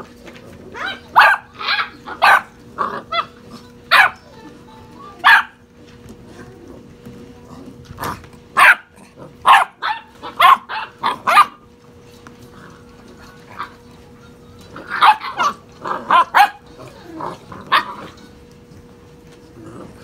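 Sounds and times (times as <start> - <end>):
puppy yapping barks: 0.8 - 4.3, 5.2 - 5.6, 8.6 - 11.6, 14.8 - 16.8, 17.6 - 18.1.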